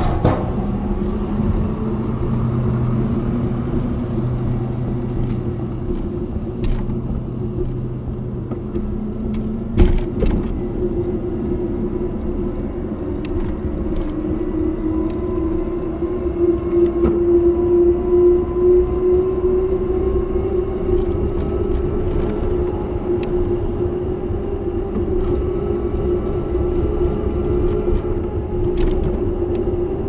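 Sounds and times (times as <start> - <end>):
bike tyres rumbling on pavement: 0.0 - 12.5
constant hum: 0.0 - 30.0.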